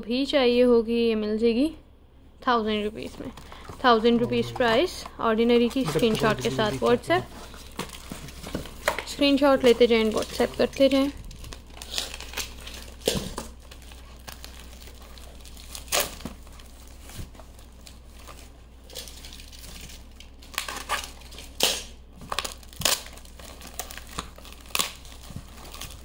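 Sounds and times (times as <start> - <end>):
packaging crinkling: 3.2 - 26.0
packaging tearing: 5.6 - 26.0.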